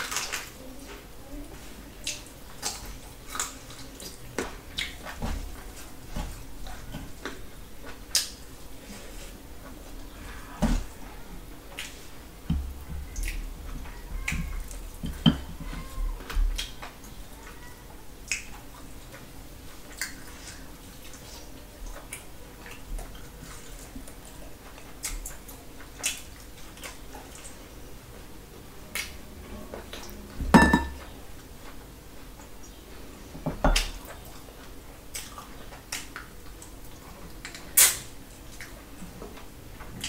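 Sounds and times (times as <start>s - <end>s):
clinks against metal plates: 30.6s - 31.0s.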